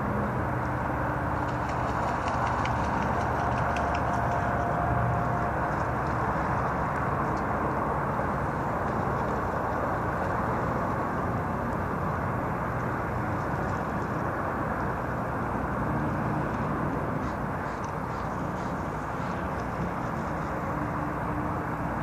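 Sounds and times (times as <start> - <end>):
outdoor background rumble and hiss: 0.0 - 22.0.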